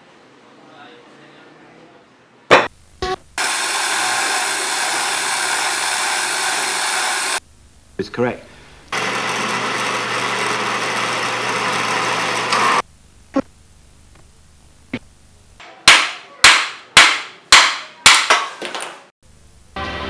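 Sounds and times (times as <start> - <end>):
end mill cutting steel: 3.4 - 7.4, 9.0 - 12.8.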